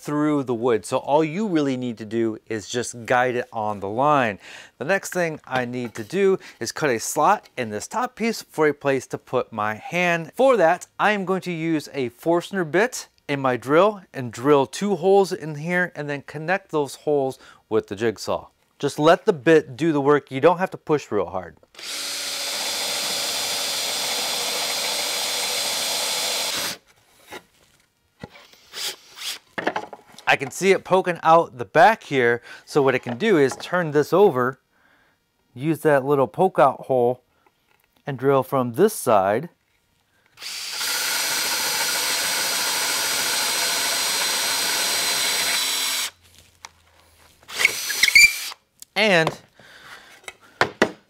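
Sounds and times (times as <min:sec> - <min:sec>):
cordless drill boring into wood: 0:21.7 - 0:26.8, 0:40.4 - 0:46.2, 0:47.5 - 0:48.6.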